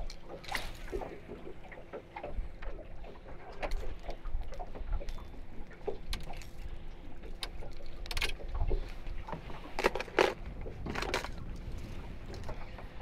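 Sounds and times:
water lapping against boat hull: 0:00.0 - 0:13.0
fishing tackle clicks and knocks: 0:03.6 - 0:06.6, 0:07.2 - 0:11.6.

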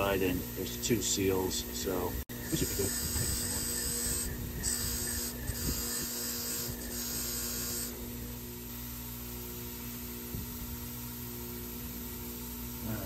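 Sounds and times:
wire wheel scrubbing metal: 0:02.3 - 0:08.0
bench grinder motor hum: 0:02.3 - 0:08.6.

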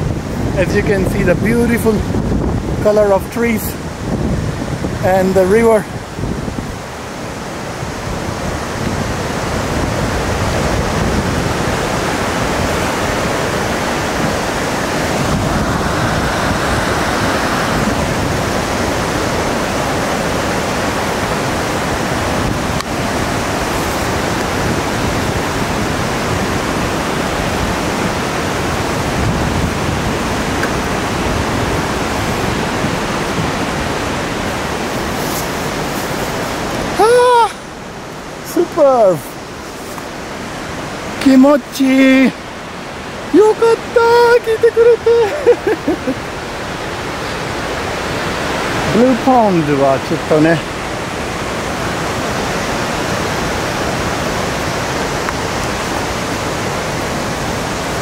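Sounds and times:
waterfall roaring: 0:00.0 - 0:58.0.

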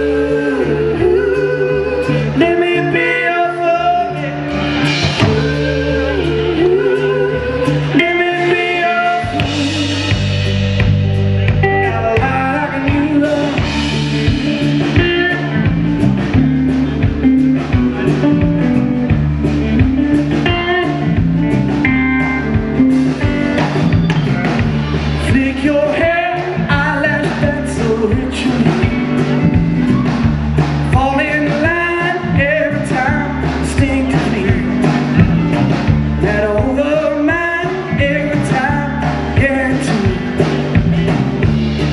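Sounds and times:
bass line: 0:00.0 - 0:41.9
electric guitar lines: 0:00.0 - 0:41.9
live blues band: 0:00.0 - 0:41.9
drum hits: 0:09.3 - 0:36.8.

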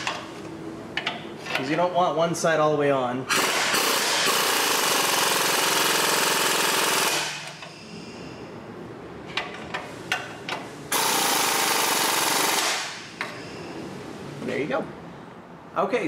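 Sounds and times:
impact wrench hammering: 0:03.3 - 0:07.7, 0:10.9 - 0:13.1.

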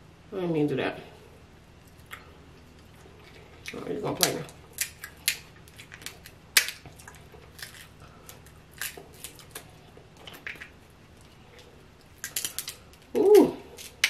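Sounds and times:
crab shells cracking: 0:02.0 - 0:10.8, 0:11.6 - 0:14.0.

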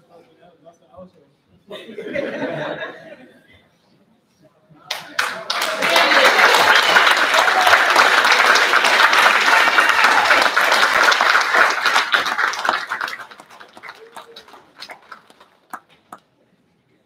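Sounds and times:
congregation applauding: 0:04.9 - 0:16.2.

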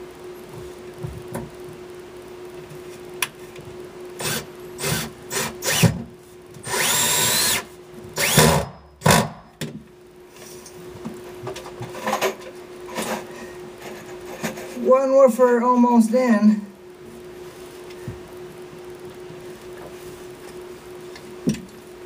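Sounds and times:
power drill driving screws: 0:04.2 - 0:06.0, 0:06.6 - 0:09.3.

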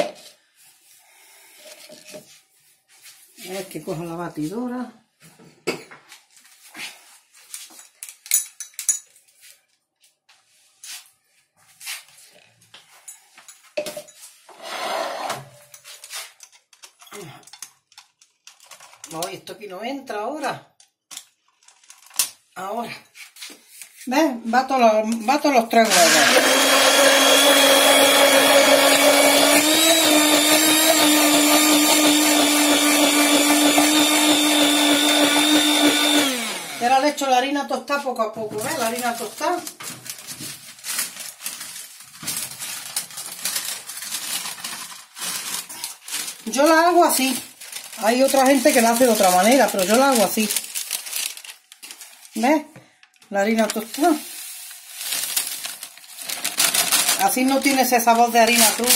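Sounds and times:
kitchen items clicking and knocking: 0:15.3 - 0:19.4
hand blender running: 0:25.8 - 0:37.2, 0:56.2 - 0:57.7.

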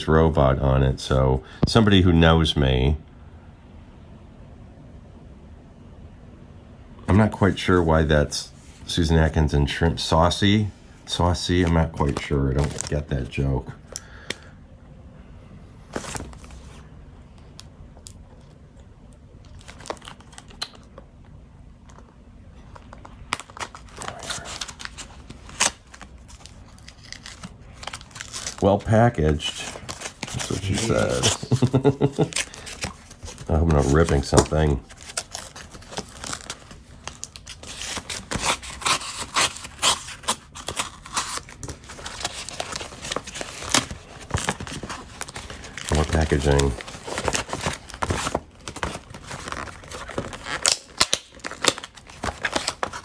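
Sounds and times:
paper rustling: 0:22.7 - 0:53.0
knife slitting paper envelope: 0:23.4 - 0:53.0.

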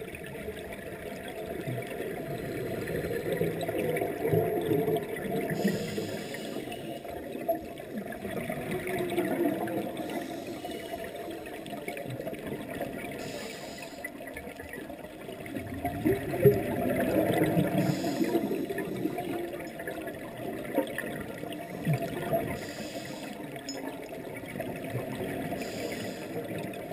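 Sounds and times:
regulator bubbles gurgling: 0:00.0 - 0:26.9
hiss of inhalation: 0:05.6 - 0:07.0, 0:10.1 - 0:11.0, 0:13.2 - 0:14.2, 0:17.8 - 0:18.6, 0:22.6 - 0:23.4, 0:25.6 - 0:26.5.

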